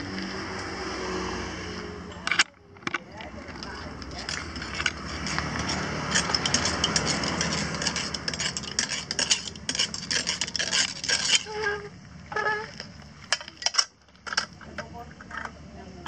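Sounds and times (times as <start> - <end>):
kernels rattling in popcorn machine: 2.3 - 11.5.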